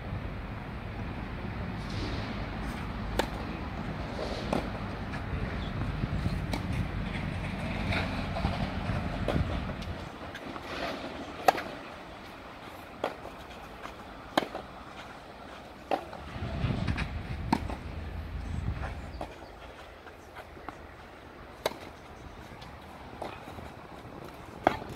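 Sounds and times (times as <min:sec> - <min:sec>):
tennis ball struck by rackets: 0:01.8 - 0:05.2, 0:06.2 - 0:06.9, 0:09.2 - 0:11.9, 0:12.9 - 0:18.1, 0:21.5 - 0:24.9.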